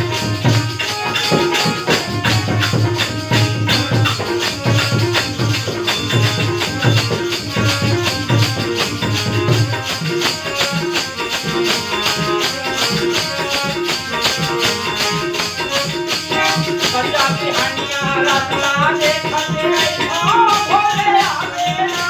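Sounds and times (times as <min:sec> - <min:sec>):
hand drums beat: 0:00.0 - 0:22.0
harmonium held tones: 0:00.0 - 0:22.0
small hand cymbals: 0:00.0 - 0:22.0
person singing: 0:16.3 - 0:22.0.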